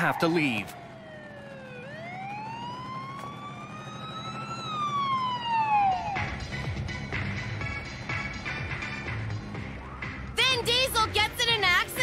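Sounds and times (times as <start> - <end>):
siren wailing: 0.0 - 7.2.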